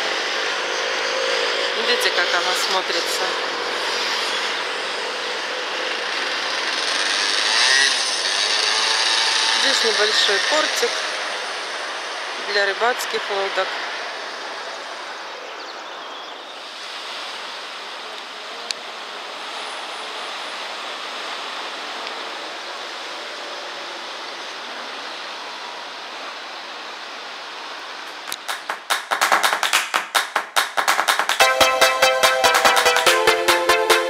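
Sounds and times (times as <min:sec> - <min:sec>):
electronic dance music: 0:28.1 - 0:34.0.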